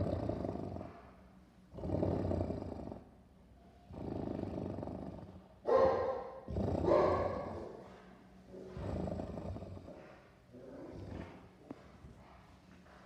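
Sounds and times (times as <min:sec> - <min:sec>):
dog growling: 0:00.0 - 0:01.1, 0:01.7 - 0:03.1, 0:03.9 - 0:07.9, 0:08.6 - 0:11.8.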